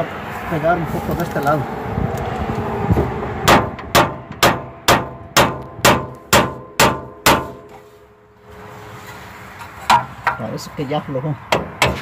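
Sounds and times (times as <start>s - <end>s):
hammer clanging on steel: 3.5s - 7.9s.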